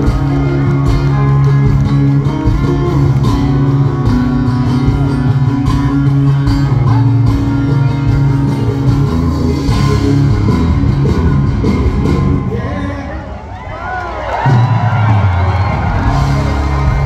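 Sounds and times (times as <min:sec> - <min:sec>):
live country band playing: 0:00.0 - 0:17.0.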